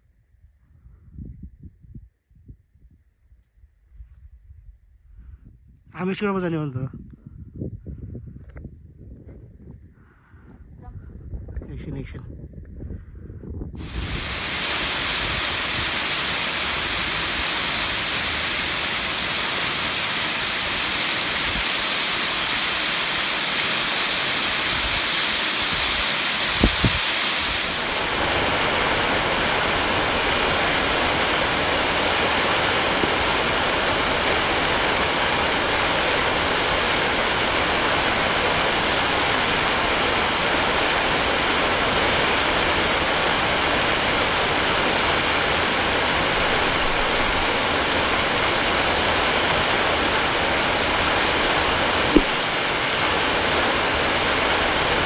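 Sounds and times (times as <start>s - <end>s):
waterfall rushing: 13.8s - 28.6s
brief thump: 52.1s - 52.5s.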